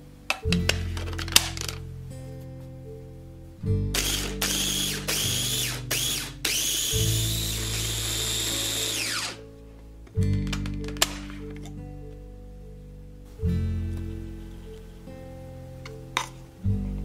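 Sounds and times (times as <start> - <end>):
food processor motor whining: 4.0 - 9.4.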